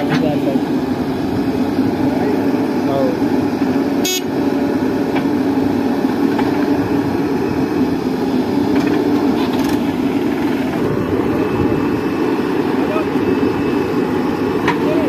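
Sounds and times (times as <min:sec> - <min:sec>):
diesel engines running: 0:00.0 - 0:15.0
backhoe digging soil: 0:03.6 - 0:13.1.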